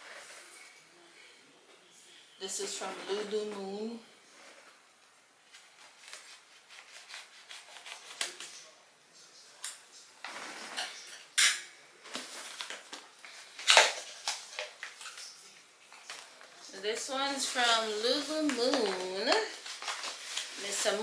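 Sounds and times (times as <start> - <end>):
clicks and rustles of packaging: 5.5 - 8.7, 12.1 - 21.0.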